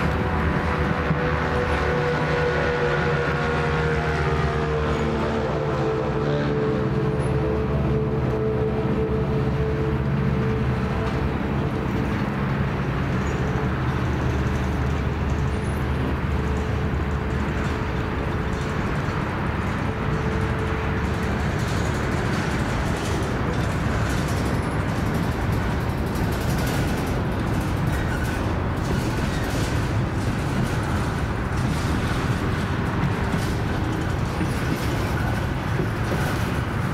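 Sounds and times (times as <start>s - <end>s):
steel wheels rumbling on rails: 0.0s - 36.9s.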